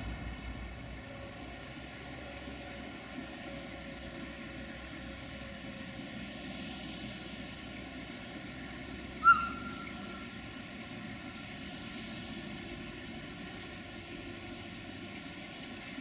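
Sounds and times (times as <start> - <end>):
diesel locomotive engine idling: 0.0 - 16.0.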